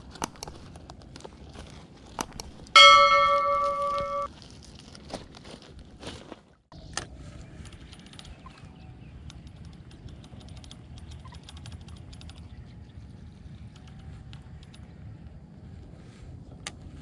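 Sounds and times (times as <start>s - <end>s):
sharp click: 0.2s - 0.7s, 2.2s - 4.3s.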